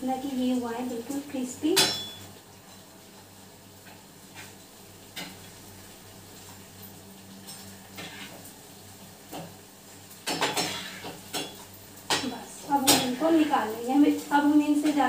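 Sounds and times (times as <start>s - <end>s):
spoon scraping a frying pan: 7.4s - 8.5s, 10.2s - 13.7s.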